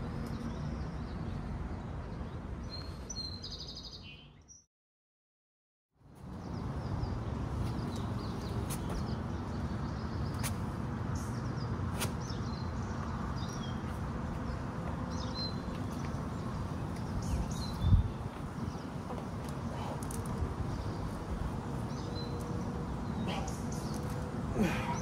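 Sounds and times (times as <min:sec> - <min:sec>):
small birds chirping: 0:00.1 - 0:04.7, 0:06.1 - 0:25.0.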